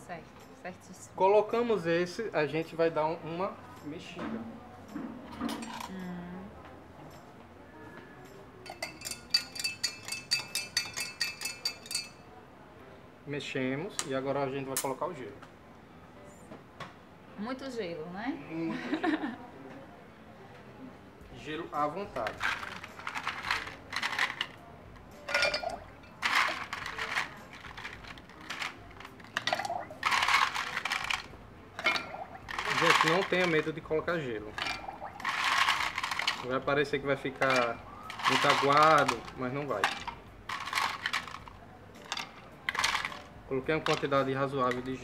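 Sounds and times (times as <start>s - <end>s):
metal spoon clinking against glass: 8.6s - 12.2s, 25.3s - 27.3s, 31.8s - 33.6s
ice cubes clinking against glass: 8.7s - 12.2s, 22.2s - 24.6s, 25.2s - 33.8s, 34.5s - 36.6s, 37.2s - 45.0s.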